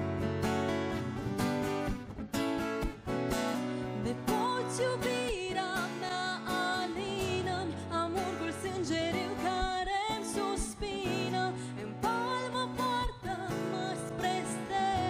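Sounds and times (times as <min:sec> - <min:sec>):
acoustic guitars: 0:00.0 - 0:15.0
woman singing a folk song: 0:03.7 - 0:15.0.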